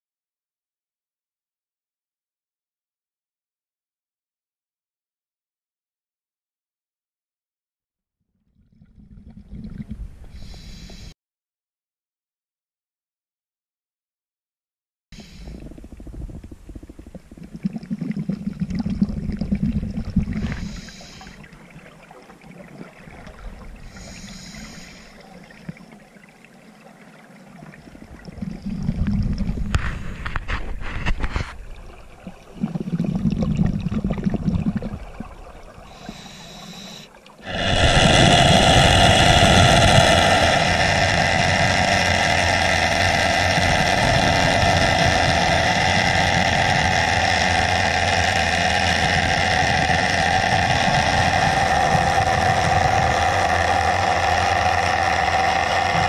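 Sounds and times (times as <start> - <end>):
regulator inhaling hiss: 10.3 - 11.1, 15.2 - 15.8, 20.4 - 21.5, 23.8 - 25.3, 35.9 - 49.5
diver exhaling bubbles: 15.2 - 21.7, 27.9 - 56.0.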